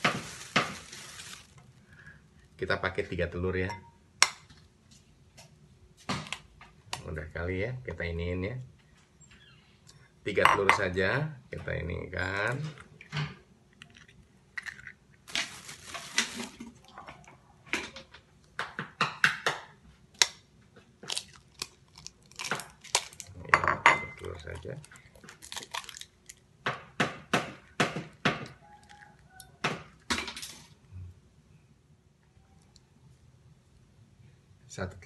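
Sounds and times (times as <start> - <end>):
eggshells cracking: 0.0 - 2.1, 13.8 - 16.8, 21.0 - 23.3, 24.2 - 26.4.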